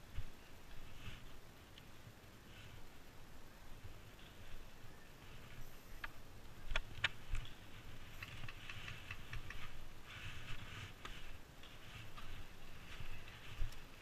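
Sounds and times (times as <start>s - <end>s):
light ticks: 1.7s - 1.9s, 6.0s - 9.8s
sharp clicks: 6.0s - 9.7s.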